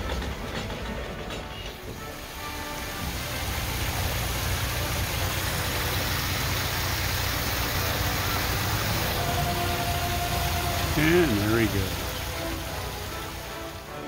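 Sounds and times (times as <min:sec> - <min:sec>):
diesel engine chugging: 0:00.0 - 0:14.0
water rushing: 0:00.0 - 0:14.0.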